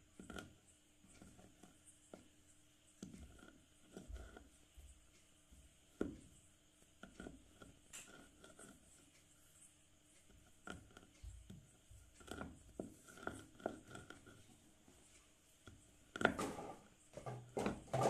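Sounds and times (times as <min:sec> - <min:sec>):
rolling pin crushing chalk: 0:00.0 - 0:02.3, 0:02.9 - 0:04.6, 0:05.6 - 0:09.2, 0:10.3 - 0:14.6, 0:15.6 - 0:18.0.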